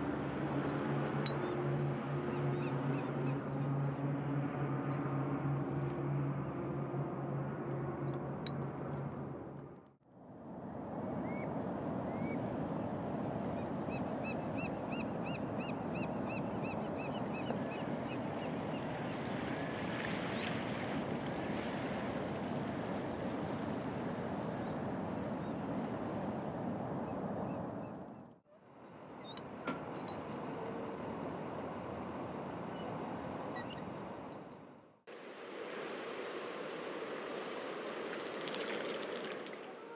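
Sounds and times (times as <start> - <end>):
seabirds high whistling calls: 11.0 - 19.3.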